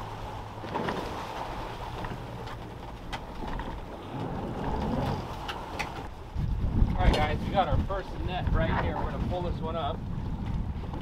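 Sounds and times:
boat motor running: 0:00.0 - 0:07.3
water washing against hull: 0:00.0 - 0:11.0
wind on microphone: 0:03.9 - 0:11.0.

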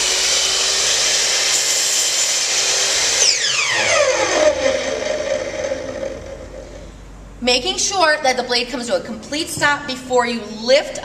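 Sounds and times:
miter saw whining: 0:00.0 - 0:07.0.

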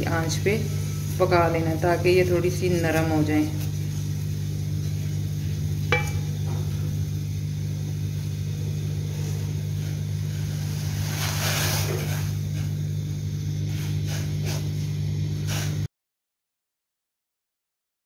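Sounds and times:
water boiling on gas burner: 0:00.0 - 0:15.9.

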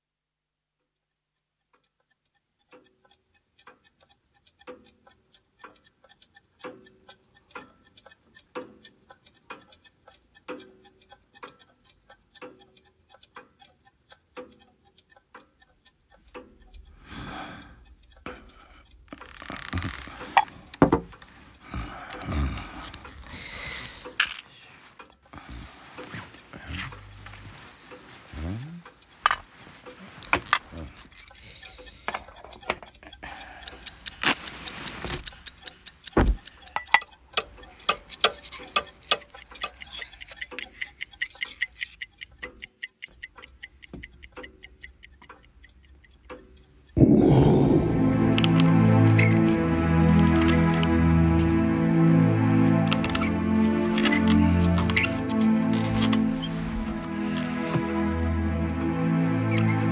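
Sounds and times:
many clocks ticking: 0:01.6 - 0:59.9
low drawn-out sound: 0:47.0 - 0:59.9.

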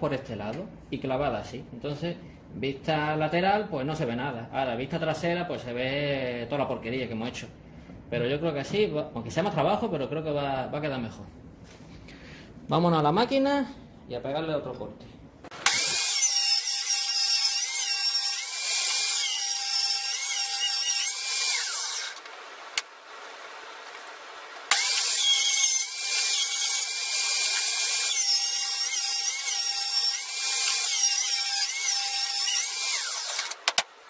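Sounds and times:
table saw cutting wood: 0:15.5 - 0:22.8, 0:24.7 - 0:33.9.

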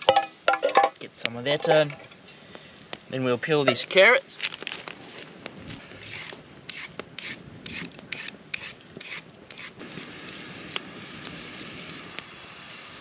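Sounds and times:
campfire hissing and crackling: 0:00.3 - 0:13.0
carrot peeling scrapes: 0:05.8 - 0:09.8.

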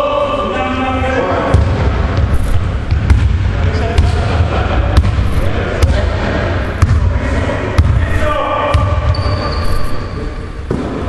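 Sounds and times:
steady low rumble: 0:01.4 - 0:10.7
basketball bouncing on hardwood floor: 0:01.5 - 0:03.4, 0:07.8 - 0:08.0.

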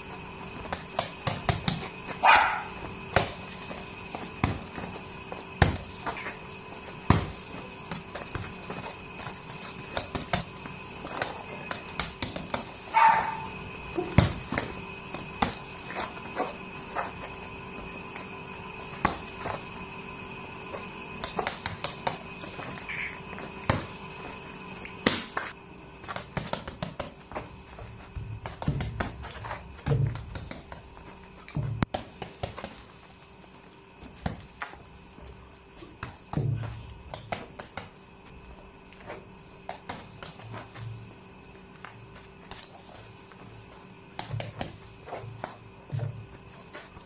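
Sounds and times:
faint steady humming tones: 0:00.0 - 0:47.0
punches thudding on heavy bag: 0:07.0 - 0:08.6.

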